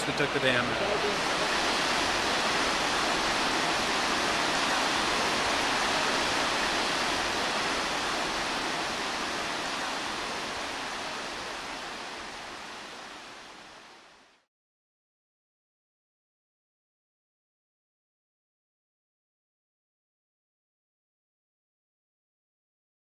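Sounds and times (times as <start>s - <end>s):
creek rapids rushing over stones: 0.0s - 14.2s.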